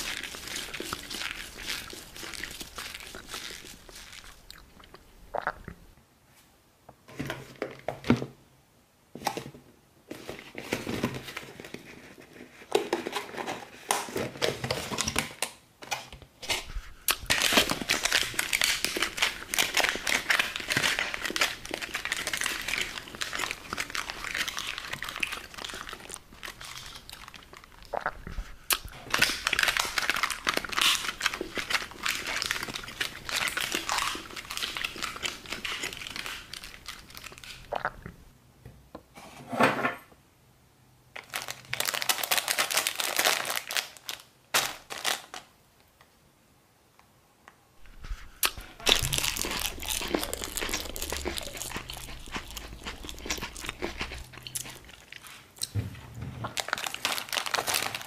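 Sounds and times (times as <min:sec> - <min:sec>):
plastic lid crinkling: 0:10.1 - 0:38.2, 0:56.4 - 0:58.0.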